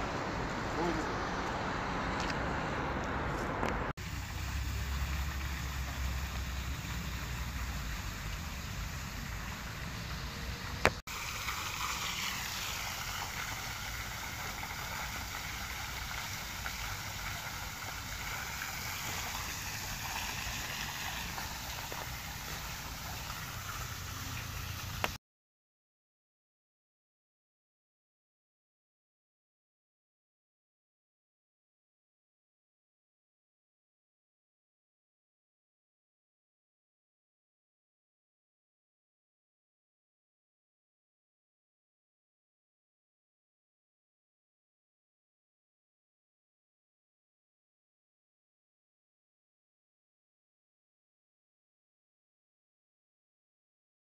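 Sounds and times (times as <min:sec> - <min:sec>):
fountain water splashing: 0:04.0 - 0:25.2.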